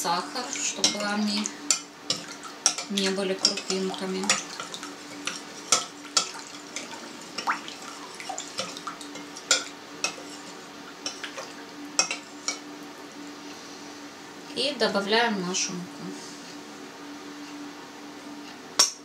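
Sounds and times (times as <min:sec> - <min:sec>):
liquid swishing: 0:04.3 - 0:09.2.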